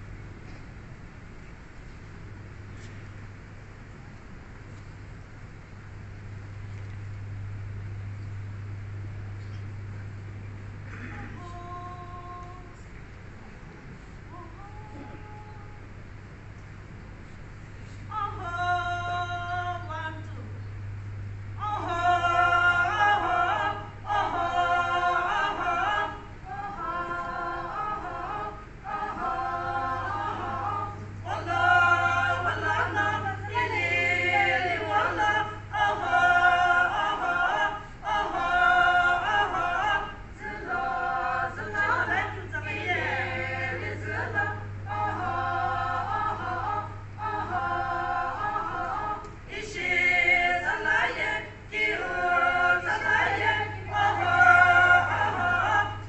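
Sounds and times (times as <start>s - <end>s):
low steady hum: 0.0s - 56.0s
women singing in unison: 21.6s - 56.0s.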